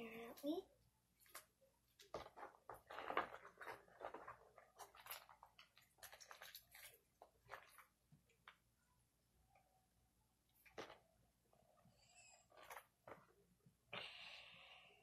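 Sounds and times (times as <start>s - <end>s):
slime squelching: 1.3s - 8.8s.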